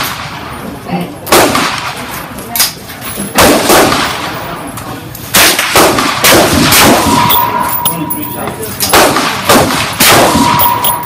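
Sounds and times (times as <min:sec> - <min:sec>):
rifle shots: 0:01.3 - 0:02.0, 0:03.3 - 0:04.4, 0:05.3 - 0:07.8, 0:08.8 - 0:11.0.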